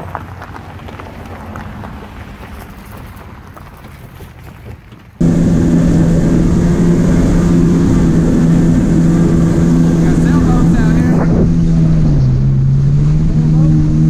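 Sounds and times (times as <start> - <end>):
car rolling on gravel: 0.0 - 12.2
jet ski engine droning: 5.2 - 14.0.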